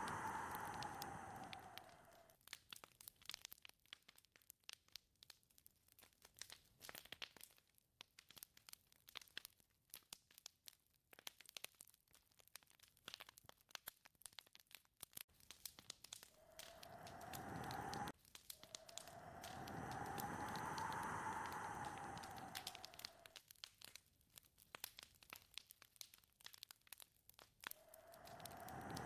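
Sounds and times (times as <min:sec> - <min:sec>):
whistling wind gusts: 0:00.0 - 0:02.1, 0:16.4 - 0:18.1, 0:18.8 - 0:23.3, 0:27.9 - 0:29.0
faint crackling and ticking: 0:00.0 - 0:29.0.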